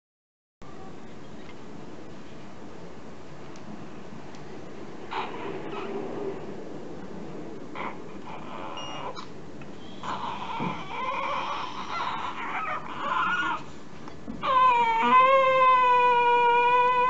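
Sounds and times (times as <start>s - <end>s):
baby crying: 10.1s - 13.7s, 14.4s - 17.0s.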